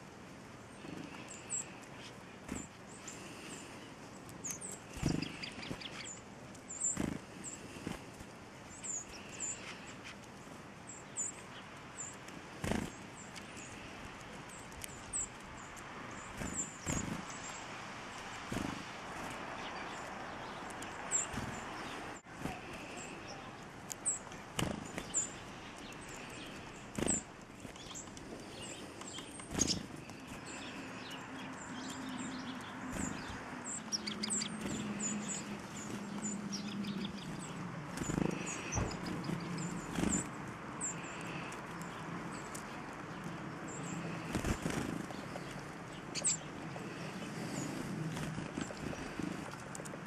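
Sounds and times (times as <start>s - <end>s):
small birds chirping: 0.0s - 50.0s
bird wings fluttering thumps: 18.4s - 19.4s, 37.9s - 40.3s.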